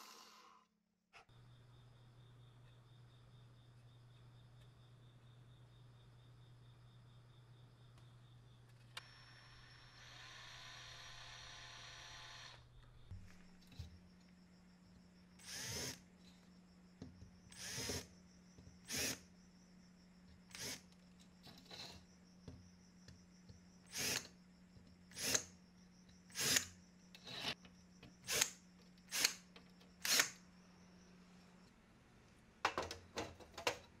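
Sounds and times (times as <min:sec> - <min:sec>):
cordless drill boring into plastic: 0:09.0 - 0:12.6, 0:15.4 - 0:16.0, 0:17.6 - 0:18.1, 0:18.9 - 0:19.2, 0:20.5 - 0:20.8, 0:23.9 - 0:24.3, 0:25.1 - 0:25.4, 0:26.4 - 0:26.6, 0:30.0 - 0:30.3.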